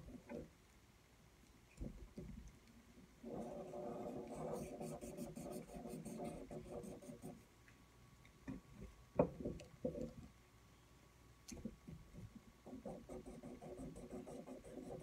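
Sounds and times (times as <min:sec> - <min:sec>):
marker scribbling on paper: 0:03.3 - 0:07.4, 0:12.9 - 0:15.0.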